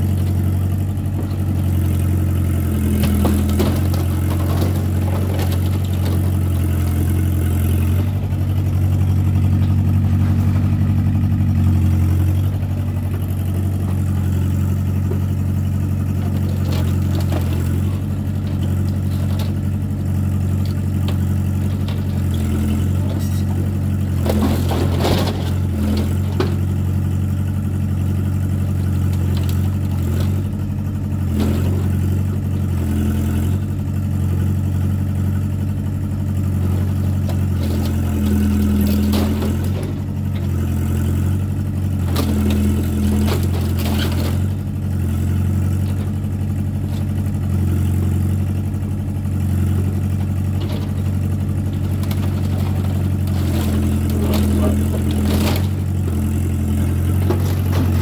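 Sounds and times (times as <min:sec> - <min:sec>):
excavator diesel engine running: 0:00.0 - 0:58.0
bucket scraping and knocking debris: 0:57.2 - 0:58.0.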